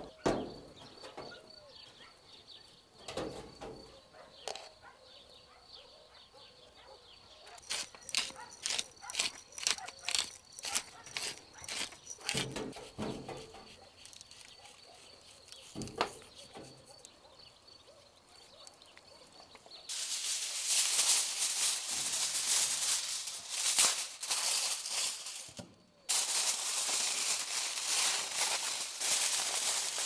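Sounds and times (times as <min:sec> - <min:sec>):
aluminium foil crackling: 0:07.5 - 0:17.1, 0:19.9 - 0:30.0
pepper mill gritty clicks: 0:07.6 - 0:12.6.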